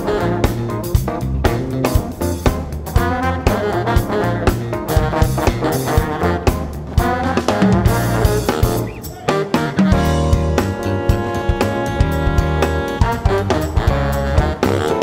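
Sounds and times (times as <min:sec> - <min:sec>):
drum kit: 0:00.0 - 0:15.0
electric bass: 0:00.0 - 0:15.0
electric piano: 0:00.0 - 0:15.0
saxophone: 0:00.0 - 0:15.0
trombone: 0:00.0 - 0:15.0.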